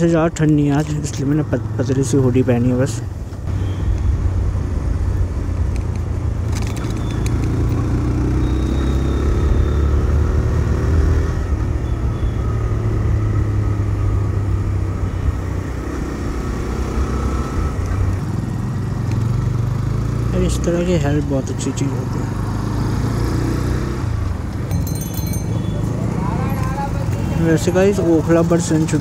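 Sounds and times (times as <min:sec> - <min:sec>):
motorcycle engine running: 0:24.2 - 0:29.0.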